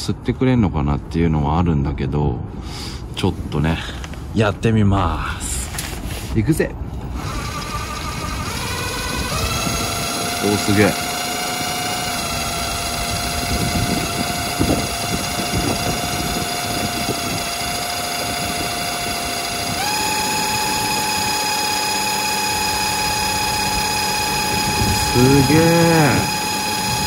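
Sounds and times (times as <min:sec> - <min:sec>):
impact driver motor whine: 0:07.0 - 0:27.0.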